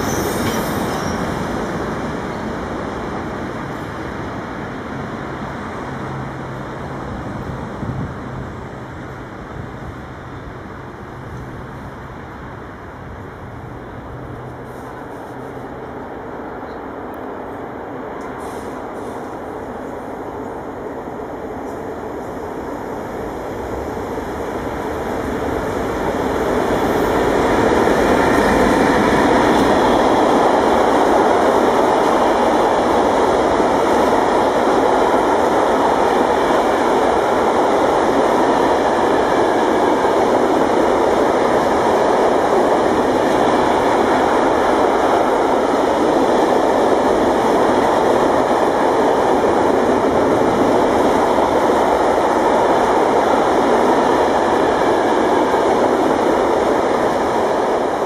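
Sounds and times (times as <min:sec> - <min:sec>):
electric train passing: 0:00.0 - 0:58.0.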